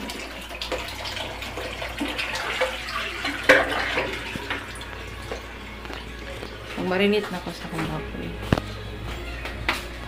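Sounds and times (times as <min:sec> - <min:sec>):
water running and splashing: 0:00.0 - 0:06.8.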